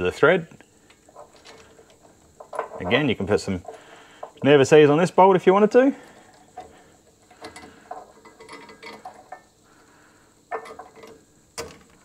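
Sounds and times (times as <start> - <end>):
small metal clicks and clinks: 7.3 - 9.5.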